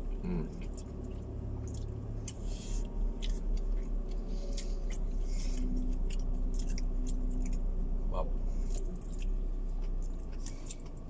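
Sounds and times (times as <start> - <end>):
chewing: 0.0 - 11.0
low hum inside car: 0.0 - 11.0.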